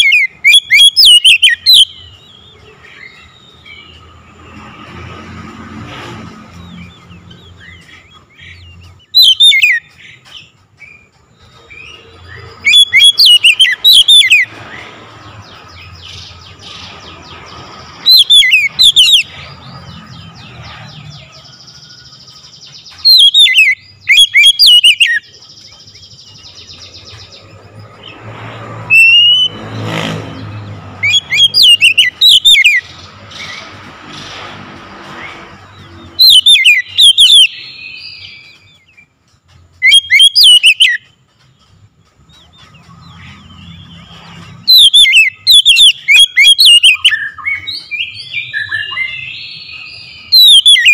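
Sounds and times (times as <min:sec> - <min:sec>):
bird singing whistled notes: 0:00.0 - 0:04.2, 0:06.6 - 0:14.8, 0:18.0 - 0:28.1, 0:28.9 - 0:29.8, 0:30.6 - 0:33.0, 0:35.9 - 0:39.1, 0:39.8 - 0:41.7, 0:42.3 - 0:50.9
rushing noise: 0:27.0 - 0:37.7.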